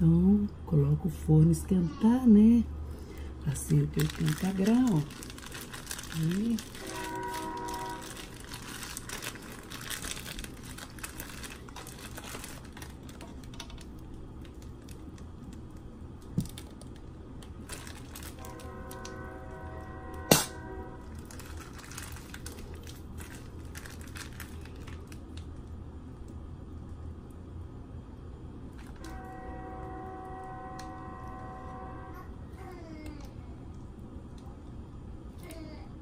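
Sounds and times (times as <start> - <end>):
plastic bag crinkling: 3.0 - 19.2, 21.0 - 25.7, 28.7 - 29.2
sharp knock: 20.3 - 20.6.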